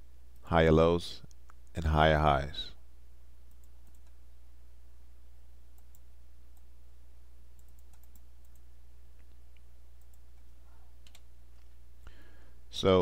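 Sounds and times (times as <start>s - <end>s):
steady low hum: 0.0s - 13.0s
computer mouse clicks: 3.5s - 4.2s, 5.8s - 6.7s, 7.6s - 11.7s.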